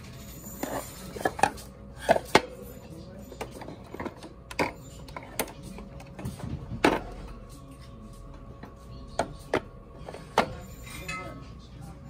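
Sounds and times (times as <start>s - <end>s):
hard objects knocking and clicking: 3.4s - 7.2s.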